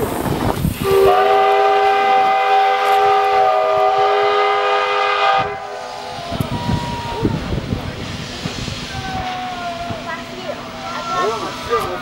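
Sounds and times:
steam locomotive whistle blast: 0:00.8 - 0:07.2.

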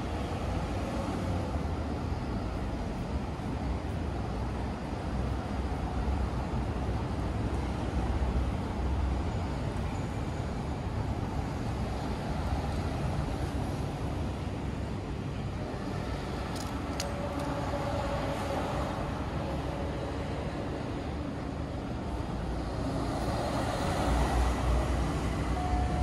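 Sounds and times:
road traffic rumble: 0:00.0 - 0:26.0
faint steady tone: 0:07.5 - 0:26.0.

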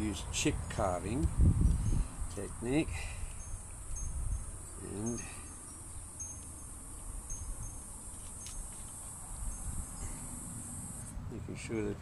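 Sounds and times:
insects trilling: 0:01.8 - 0:11.1.

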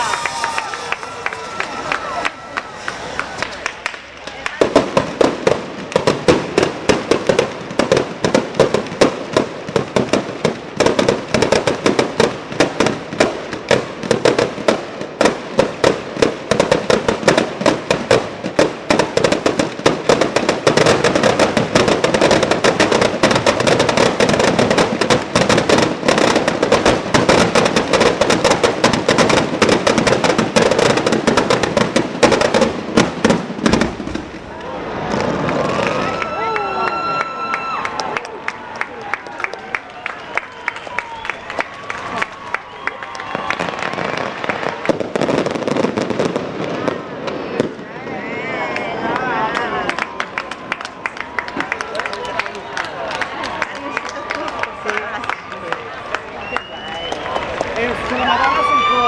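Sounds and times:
firecrackers banging rapidly: 0:02.4 - 0:36.2, 0:43.0 - 0:48.0.

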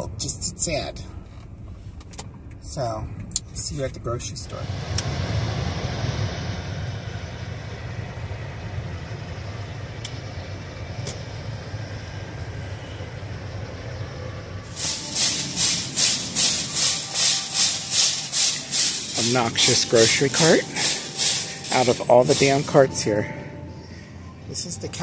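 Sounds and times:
shopping cart rattling: 0:14.7 - 0:23.2.

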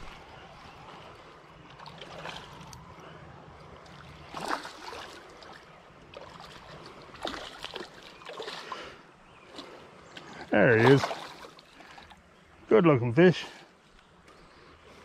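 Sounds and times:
creek water washing: 0:00.0 - 0:15.0
fish splashing at water surface: 0:04.0 - 0:08.9, 0:10.7 - 0:12.1.

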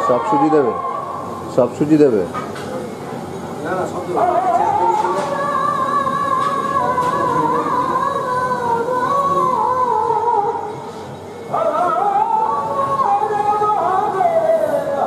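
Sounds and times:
person singing long high note: 0:00.0 - 0:01.4, 0:11.5 - 0:15.0.

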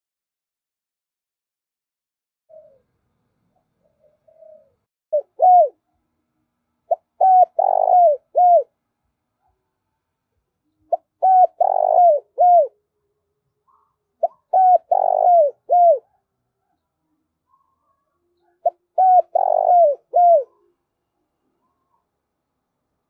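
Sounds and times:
dove cooing: 0:02.5 - 0:02.9, 0:03.6 - 0:05.8, 0:06.9 - 0:08.7, 0:10.8 - 0:12.8, 0:13.7 - 0:16.2, 0:17.5 - 0:20.8.

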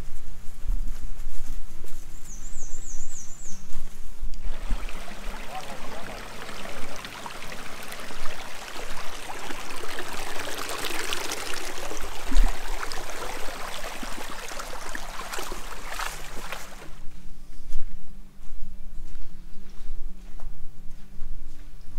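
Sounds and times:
brook trickling over rocks: 0:04.4 - 0:17.0.

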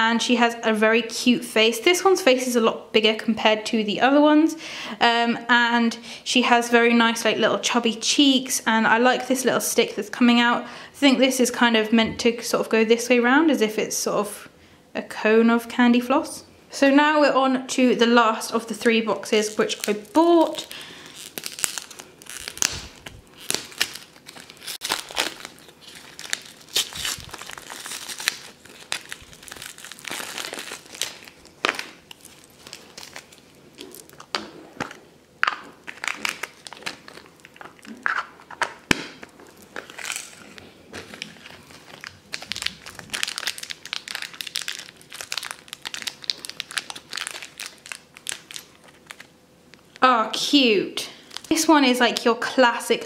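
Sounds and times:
plastic wrap crinkling: 0:18.5 - 0:50.1, 0:51.0 - 0:52.3
foil bag tearing: 0:19.2 - 0:35.0, 0:35.8 - 0:38.1, 0:39.3 - 0:49.3, 0:51.2 - 0:51.6.

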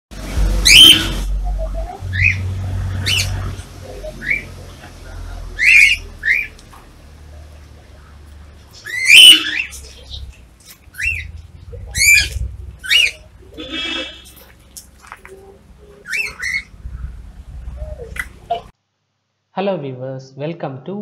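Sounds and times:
cockatiels calling: 0:03.0 - 0:03.5, 0:05.6 - 0:06.6, 0:08.8 - 0:14.3, 0:16.0 - 0:17.1.

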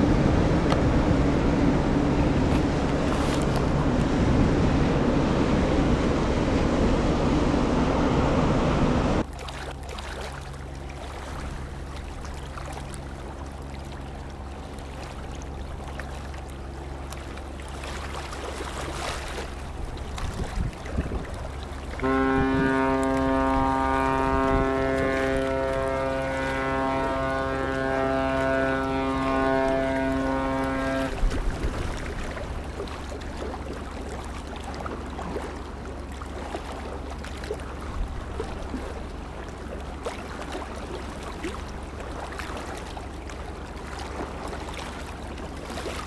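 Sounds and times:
ship's horn blast: 0:00.0 - 0:09.2, 0:22.0 - 0:31.4
low ship engine drone: 0:00.0 - 0:46.0
ship bow wash rumbling: 0:00.0 - 0:46.0.

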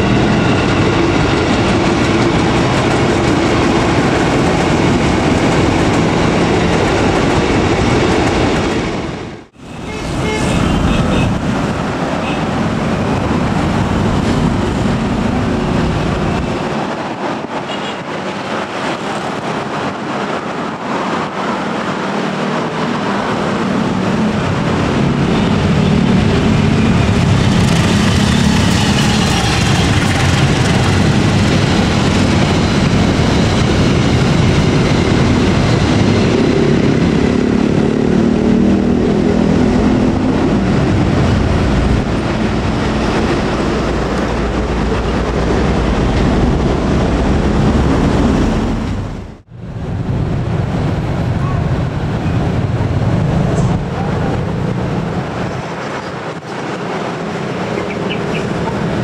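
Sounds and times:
train wheels on rails: 0:00.0 - 0:59.0
locomotive engine drone: 0:19.5 - 0:59.0.

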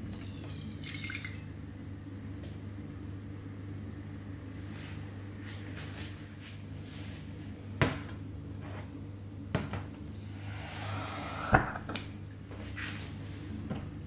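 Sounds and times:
steady low hum: 0:02.0 - 0:12.6
gas lighter hissing: 0:10.3 - 0:12.0.

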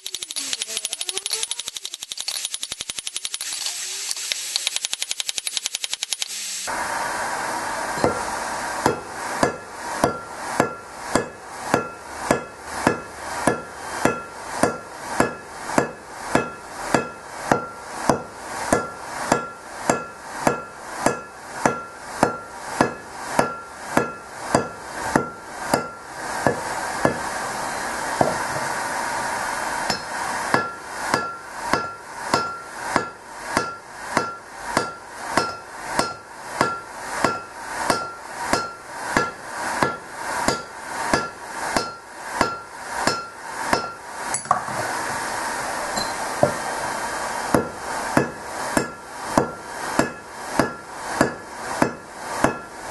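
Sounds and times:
hammer striking steel on anvil: 0:08.0 - 0:27.3, 0:29.8 - 0:44.8, 0:45.9 - 0:46.6, 0:47.5 - 0:52.8.

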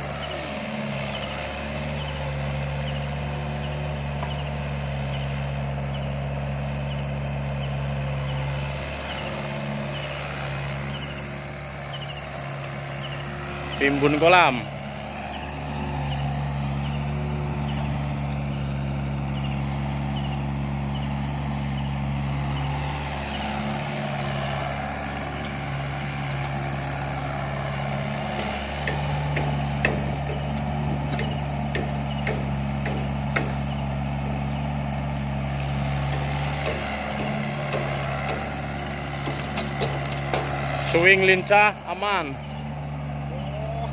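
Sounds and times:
excavator diesel engine running: 0:00.0 - 0:43.9
metal clanks and knocks: 0:28.3 - 0:33.6, 0:39.2 - 0:40.6.

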